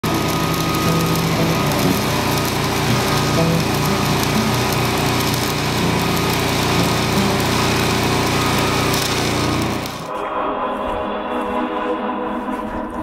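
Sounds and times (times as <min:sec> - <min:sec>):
arc welding crackling hiss: 0:00.0 - 0:10.1
low drone: 0:00.0 - 0:13.0.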